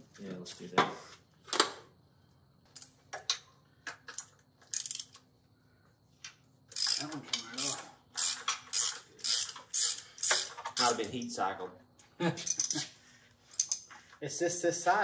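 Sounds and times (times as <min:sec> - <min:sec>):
ratchet wrench clicking: 0:04.1 - 0:05.3, 0:06.7 - 0:11.1, 0:12.4 - 0:12.8, 0:13.5 - 0:13.8.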